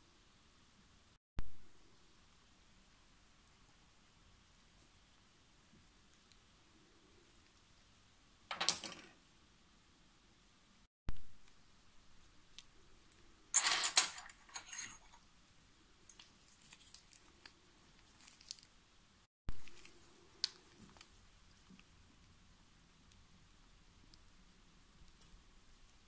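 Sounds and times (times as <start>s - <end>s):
plastic film crinkling: 16.2s - 18.7s.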